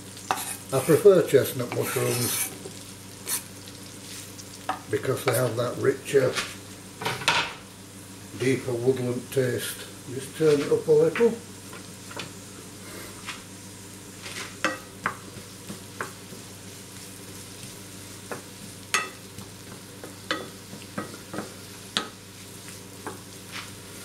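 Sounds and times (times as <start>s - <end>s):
mushrooms and onion sizzling in pan: 0.0s - 24.0s
wooden spatula scraping pan: 0.3s - 1.1s, 1.7s - 2.7s.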